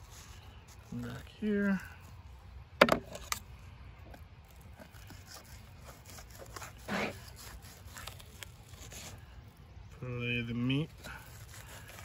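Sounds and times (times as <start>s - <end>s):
knife scraping cutting board: 4.8s - 9.2s.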